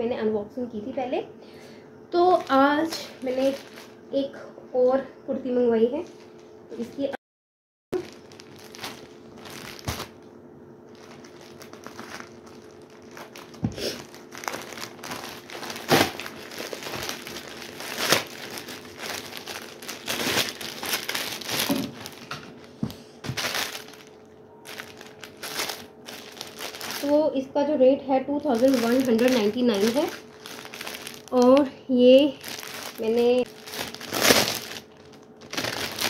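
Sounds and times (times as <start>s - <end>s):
sharp plastic crackles: 2.2s - 4.0s, 8.0s - 10.3s, 10.9s - 27.2s, 28.3s - 36.0s
plastic bag crinkling: 2.2s - 4.1s, 8.0s - 27.3s, 28.2s - 36.0s.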